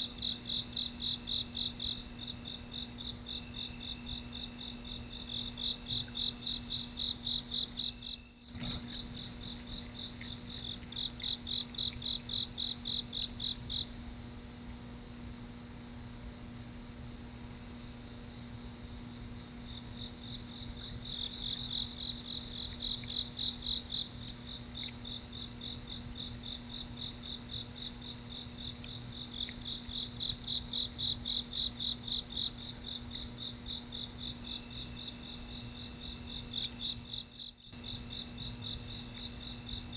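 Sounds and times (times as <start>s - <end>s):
insects trilling: 0.0s - 15.0s, 18.8s - 39.9s
low pulsed insect call: 0.0s - 39.9s.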